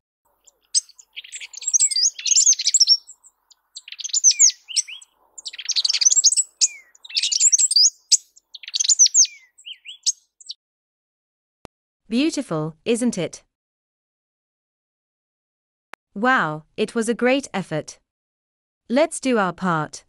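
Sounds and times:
bird singing tinkling notes: 0.4s - 10.6s.

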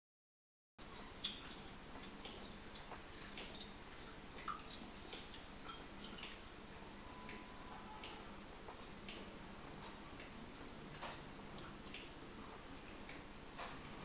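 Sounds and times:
faint steady hum: 0.8s - 14.0s
wet chewing and mouth clicks: 0.9s - 6.4s.

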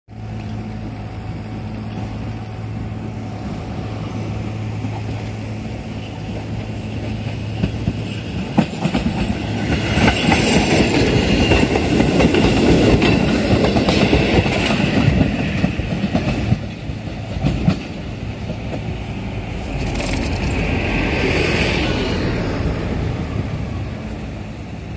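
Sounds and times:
train wheels clacking: 4.7s - 21.7s.

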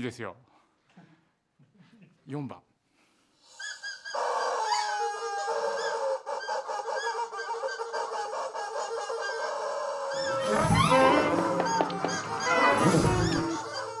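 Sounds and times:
low instrument sounds: 10.3s - 14.0s
short repeated high notes: 10.3s - 14.0s.

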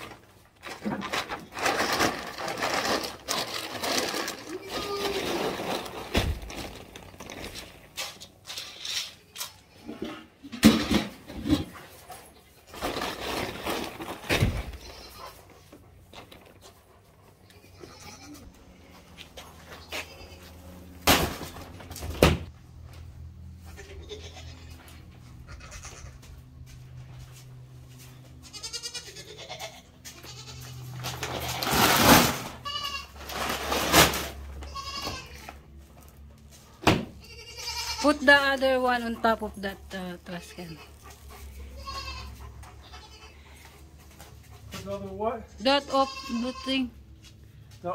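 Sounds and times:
paper sack rustling: 0.6s - 8.0s, 12.7s - 14.6s, 31.0s - 34.6s
goats bleating: 17.5s - 18.6s, 23.6s - 26.2s, 28.4s - 30.9s, 32.6s - 33.2s, 34.6s - 35.6s, 37.2s - 38.2s, 41.6s - 43.7s, 45.7s - 47.0s.

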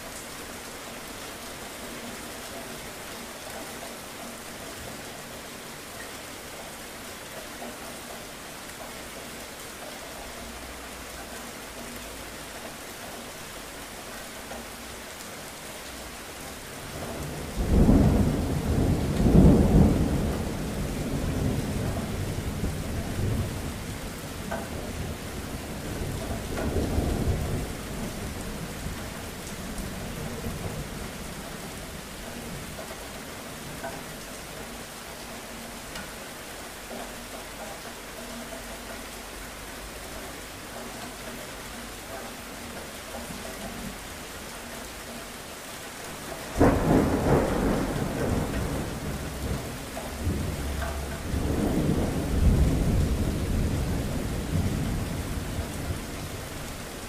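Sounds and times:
steady rain falling: 0.0s - 57.0s
thunderclap rumbling: 17.2s - 24.2s, 46.5s - 56.5s.

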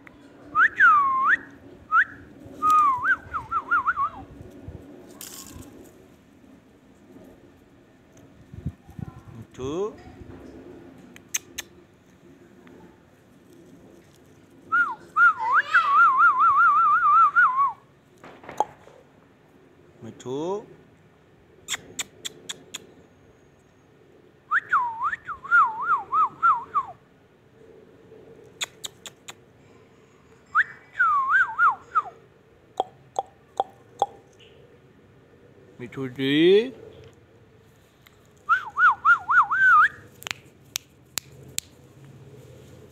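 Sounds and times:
wavering whistle: 0.6s - 4.2s, 14.7s - 17.8s, 24.5s - 27.0s, 30.5s - 32.2s, 38.5s - 40.0s.

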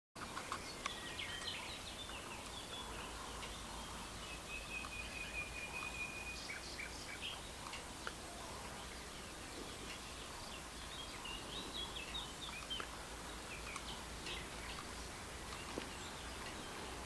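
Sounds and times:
birds chirping: 0.2s - 17.0s
outdoor background noise: 0.2s - 17.0s
long high-pitched bird call: 0.5s - 7.6s.

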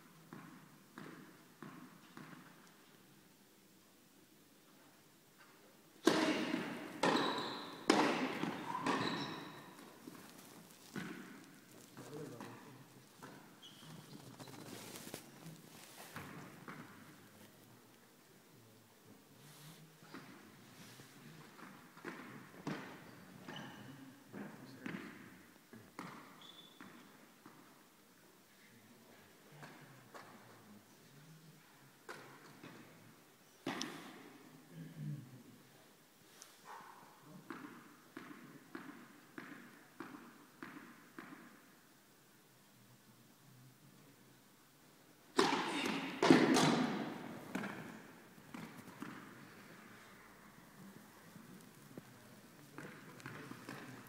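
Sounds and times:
tennis ball struck by racket: 6.0s - 9.6s, 45.4s - 49.4s
tennis ball bouncing: 6.0s - 10.2s, 10.9s - 11.5s, 37.5s - 41.6s, 45.4s - 49.5s
short high squeak: 8.6s - 9.7s.

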